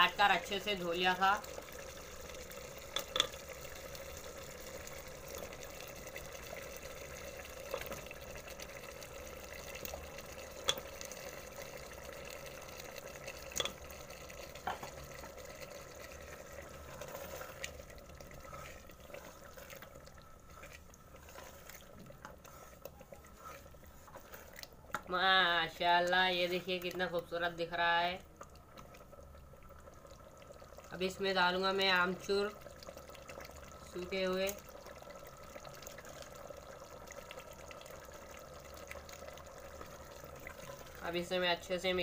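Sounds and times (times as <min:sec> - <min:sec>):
masala bubbling and sizzling: 0:00.0 - 0:42.0
wooden spoon stirring: 0:05.2 - 0:27.4.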